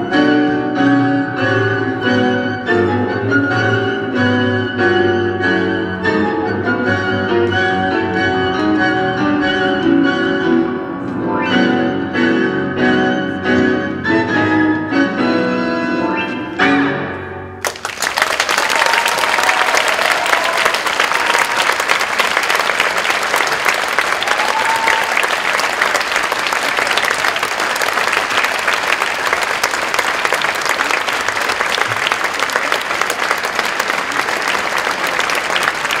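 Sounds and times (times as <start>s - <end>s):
tango music: 0.0s - 17.9s, 21.4s - 36.0s
audience applauding: 17.6s - 36.0s.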